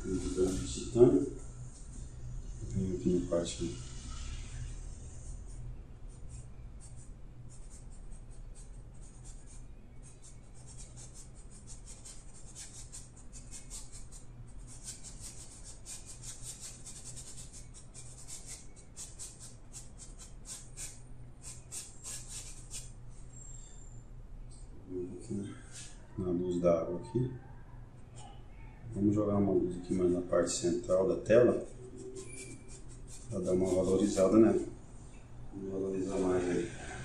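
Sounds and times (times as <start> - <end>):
paintbrush strokes on canvas: 0.0 - 23.4, 30.9 - 34.7, 36.0 - 37.0
steady low hum: 0.0 - 37.0.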